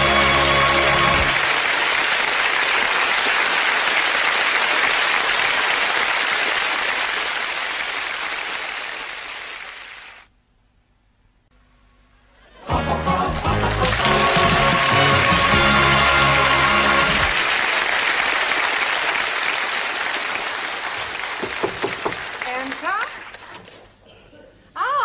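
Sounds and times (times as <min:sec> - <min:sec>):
theme tune ending: 0:00.0 - 0:01.5, 0:12.6 - 0:17.6
studio audience applauding: 0:00.0 - 0:10.3, 0:12.8 - 0:23.6.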